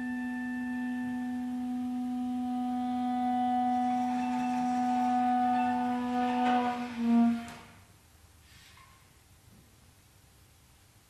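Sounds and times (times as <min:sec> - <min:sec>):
clarinet holding low note: 0:00.0 - 0:07.8
soft higher instrument tones: 0:00.0 - 0:07.8.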